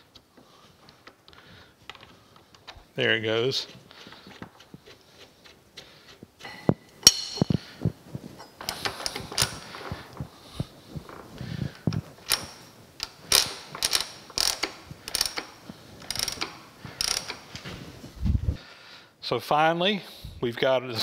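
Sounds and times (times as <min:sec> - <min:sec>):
metal gears clicking and clinking: 0:12.2 - 0:17.4.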